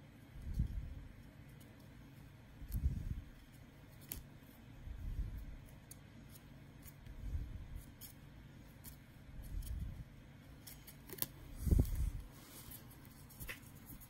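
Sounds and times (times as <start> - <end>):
cards rustling: 7.7 - 14.0.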